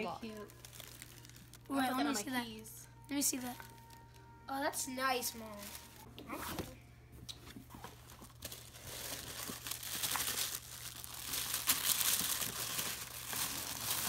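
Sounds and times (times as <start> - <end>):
tissue paper rustling: 0.0 - 2.2, 5.2 - 6.6, 7.7 - 14.0.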